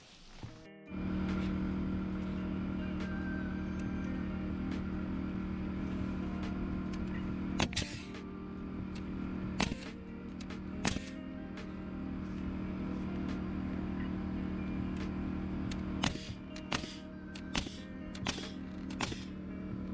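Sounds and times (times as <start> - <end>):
air compressor motor running: 0.3 - 19.9
nail gun shots: 7.6 - 8.2, 9.6 - 10.0, 10.8 - 11.2, 16.0 - 19.3.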